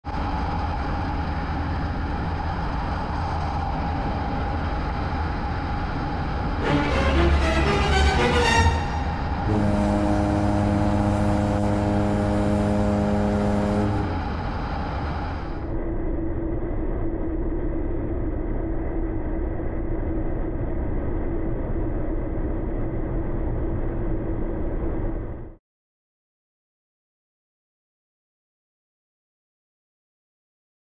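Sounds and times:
wind and road rush: 0:00.1 - 0:06.6
motorcycle engine droning: 0:09.5 - 0:14.8.

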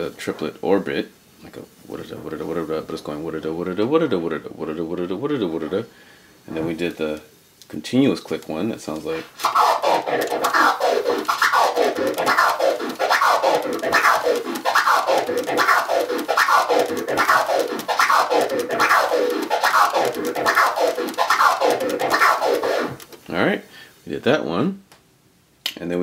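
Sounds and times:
turntable scratching: 0:09.0 - 0:23.2.

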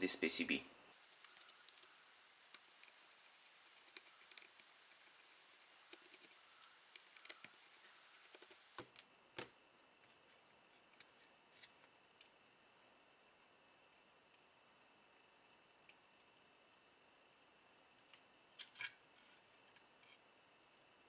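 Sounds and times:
circuit board being handled: 0:01.0 - 0:08.8
screwdriver clicks and scrapes: 0:01.0 - 0:08.8.

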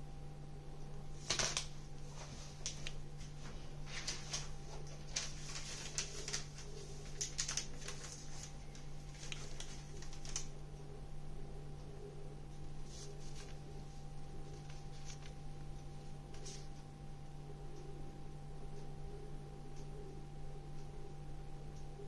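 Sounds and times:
steady low hum: 0:00.0 - 0:22.0
food packaging rustling: 0:01.2 - 0:10.5.

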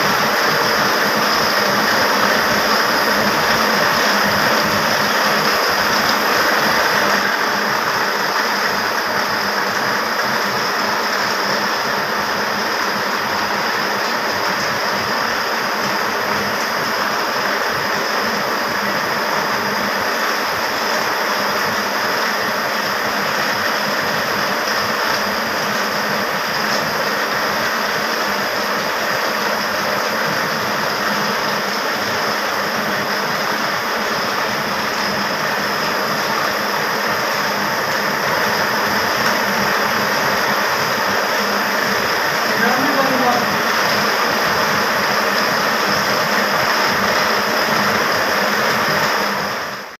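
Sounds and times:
textile machinery running: 0:00.0 - 0:49.9.

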